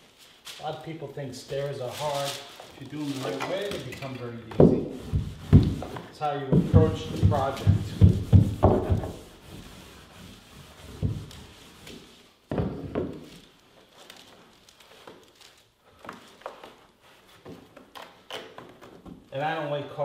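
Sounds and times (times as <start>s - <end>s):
hands rubbing carpet tile: 4.6s - 12.4s.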